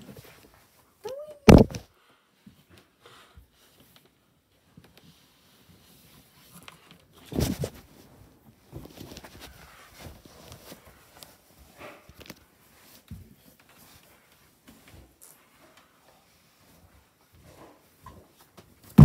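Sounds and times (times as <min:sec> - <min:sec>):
people moving about rustling: 0:00.0 - 0:19.0
heavy thump: 0:01.5 - 0:01.8.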